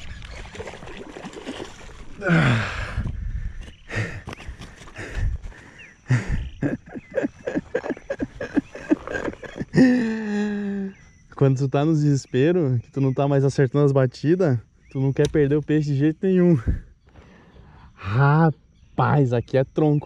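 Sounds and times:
fish splashing out of water: 0.0s - 2.4s
person grunting: 2.2s - 3.0s.

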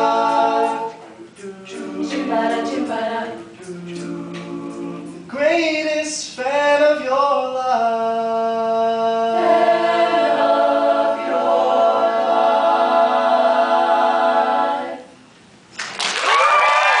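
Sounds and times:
choir holding a chord: 0.0s - 5.2s, 9.3s - 15.1s
audience applause and cheering: 15.8s - 17.0s.

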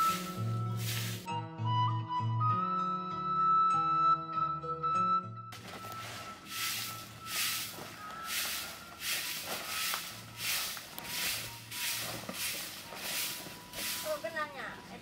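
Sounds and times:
broom swishing over ground: 0.0s - 1.3s, 5.6s - 14.7s.

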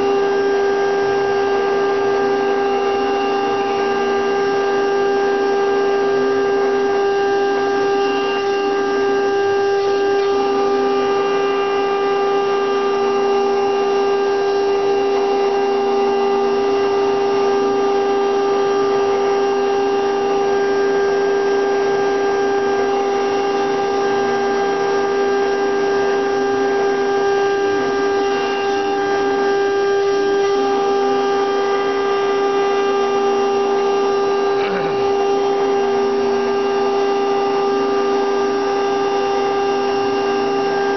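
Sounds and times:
router spindle whining: 0.0s - 40.9s
wood being cut: 27.6s - 38.1s.

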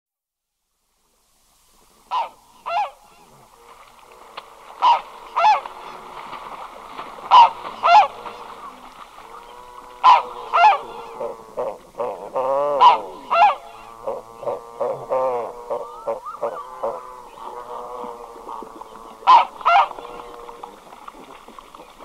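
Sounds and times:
faint background goose calls: 1.9s - 22.0s
goose calling: 2.1s - 3.2s, 4.8s - 6.4s, 7.2s - 20.6s.

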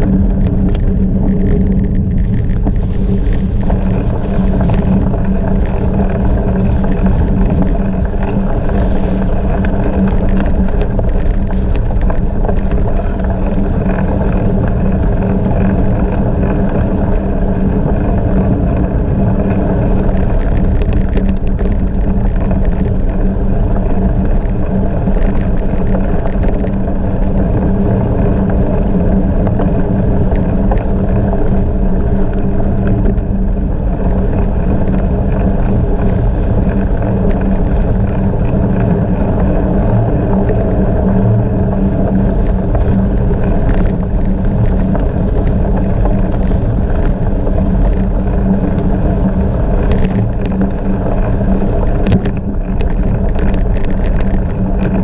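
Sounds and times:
bicycle rolling at speed: 0.0s - 55.0s
wind on microphone: 0.0s - 55.0s.

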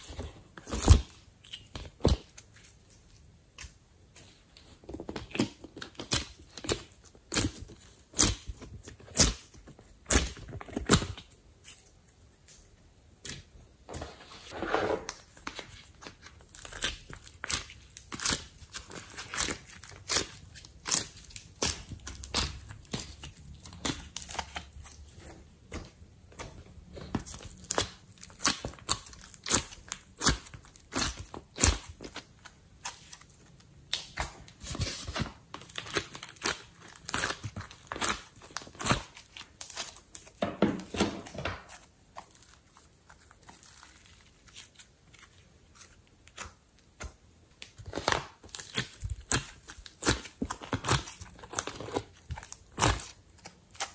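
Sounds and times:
slime crackling and popping: 16.4s - 25.1s, 27.2s - 40.4s, 41.7s - 53.9s.

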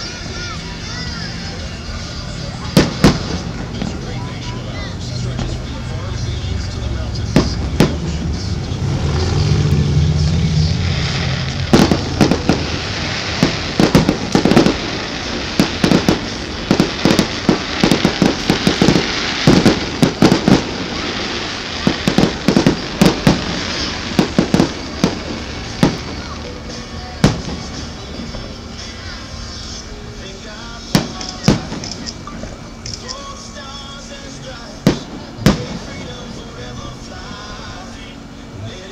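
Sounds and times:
firework shells bursting: 2.8s - 4.1s, 10.9s - 29.4s, 30.9s - 33.3s, 34.8s - 36.4s.

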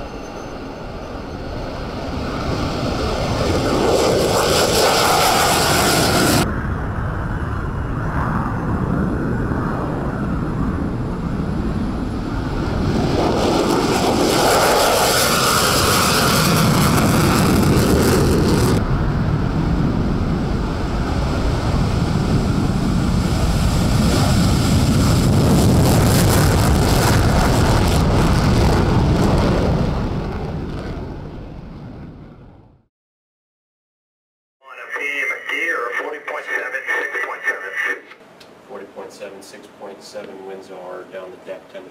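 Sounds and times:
jet engine roaring on takeoff: 0.0s - 32.8s, 34.7s - 38.6s.

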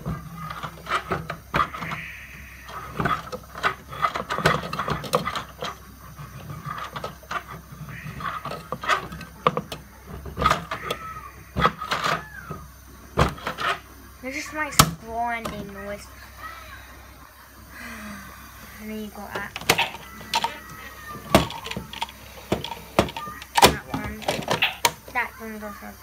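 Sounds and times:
plastic clicks and rattles: 0.0s - 2.1s, 2.7s - 12.6s, 19.3s - 25.2s
toy washing machine grinding: 0.0s - 16.7s, 17.7s - 26.0s.

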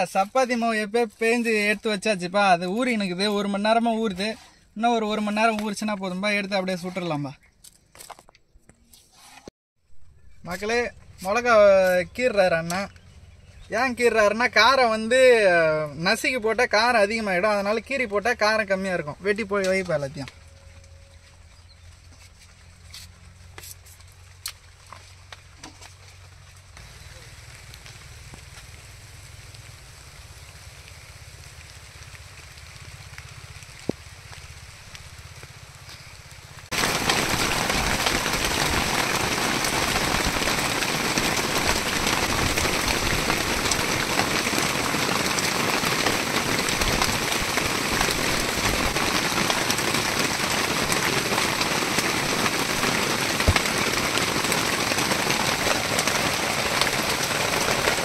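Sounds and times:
heavy rain pouring: 26.7s - 58.0s.

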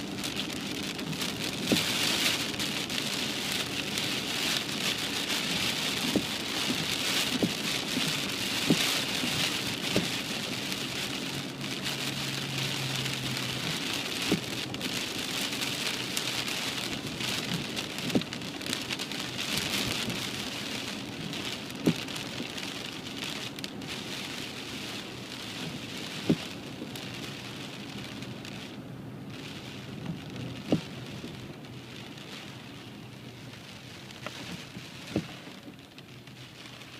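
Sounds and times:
heavy rain on car roof: 0.0s - 36.9s.

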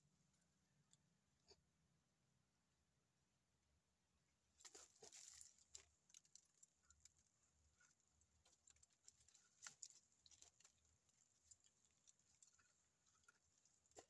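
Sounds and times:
teeth scraping tree bark: 4.6s - 14.0s.

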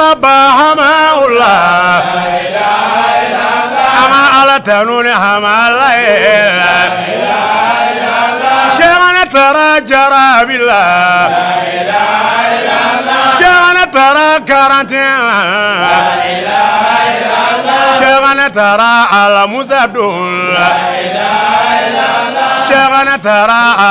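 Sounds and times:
man singing melismatic lines: 0.0s - 2.0s, 4.0s - 6.9s, 8.7s - 11.4s, 13.4s - 16.1s, 18.0s - 20.8s, 22.7s - 23.9s
group of men singing along: 0.0s - 23.9s.

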